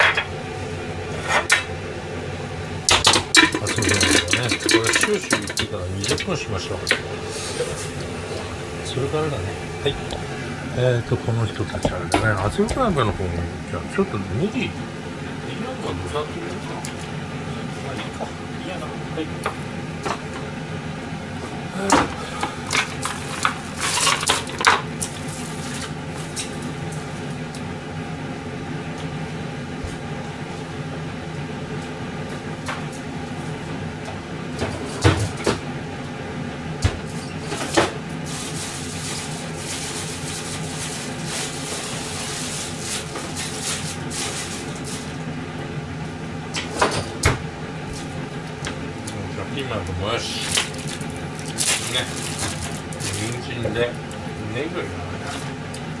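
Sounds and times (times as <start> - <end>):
steady hum: 0.0 - 56.0
dishes clinking: 2.9 - 6.3.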